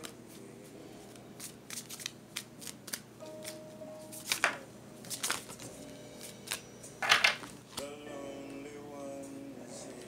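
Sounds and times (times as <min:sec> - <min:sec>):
cards being shuffled: 0:01.1 - 0:07.9.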